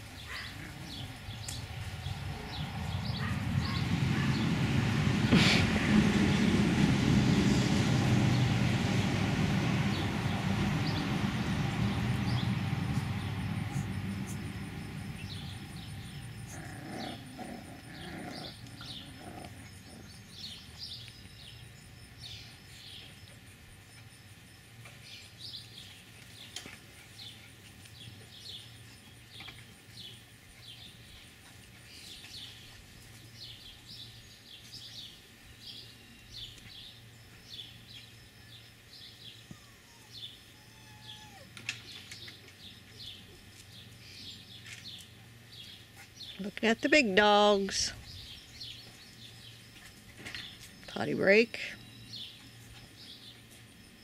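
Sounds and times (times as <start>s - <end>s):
birds chirping: 0.0s - 6.5s, 9.9s - 23.4s, 25.0s - 54.0s
loud low rumble: 1.1s - 16.8s.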